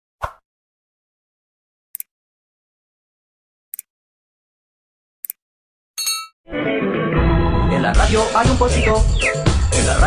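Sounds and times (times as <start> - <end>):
bright bell chime: 6.0 - 6.4.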